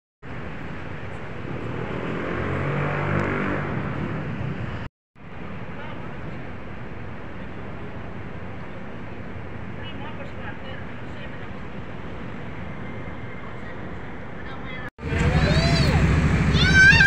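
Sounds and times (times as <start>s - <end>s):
street traffic: 0.2s - 17.0s
vehicle engine passing: 1.3s - 4.9s, 15.0s - 17.0s.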